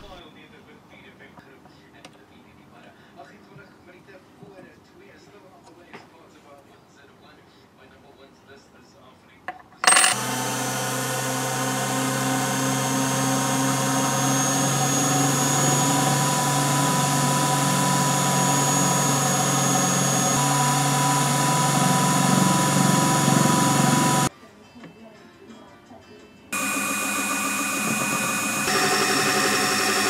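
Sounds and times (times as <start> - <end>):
lathe milling brass: 9.8 - 24.3, 26.6 - 30.0.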